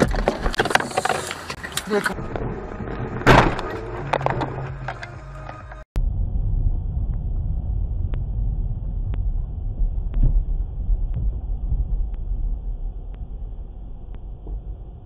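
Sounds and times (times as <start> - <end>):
car engine and road noise: 0.0 - 15.0
faint ticking: 8.0 - 15.0.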